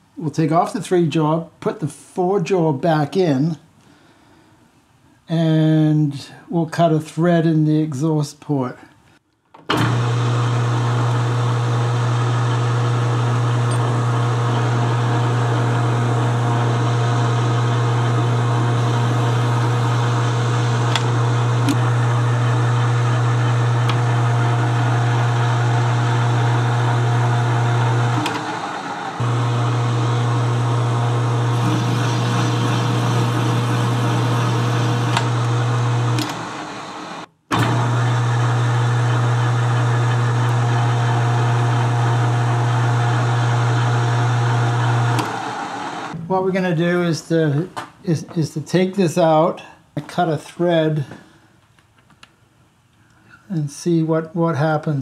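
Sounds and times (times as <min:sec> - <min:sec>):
metal lathe humming: 0:09.8 - 0:46.2.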